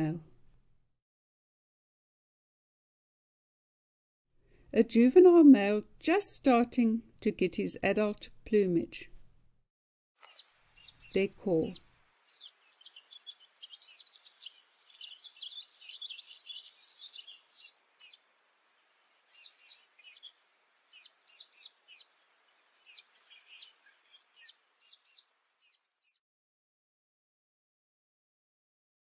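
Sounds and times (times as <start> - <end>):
bird twittering and chipping: 10.2 - 26.2.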